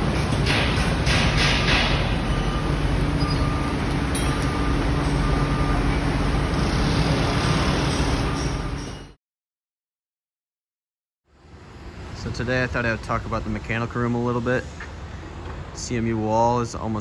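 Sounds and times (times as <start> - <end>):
construction machinery rumble: 0.0 - 9.2.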